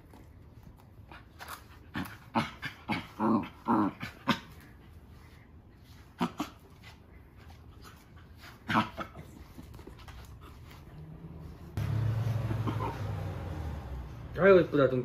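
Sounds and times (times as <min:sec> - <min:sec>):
dog grumbling and whining: 0:01.6 - 0:04.8.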